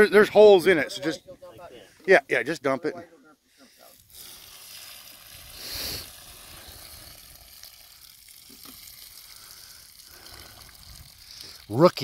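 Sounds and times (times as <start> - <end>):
water splashing onto grass: 4.0 - 12.0.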